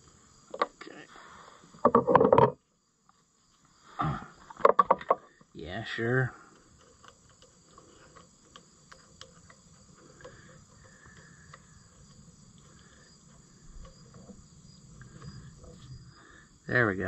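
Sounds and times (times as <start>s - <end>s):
small parts clicking and tapping: 6.3s - 15.9s.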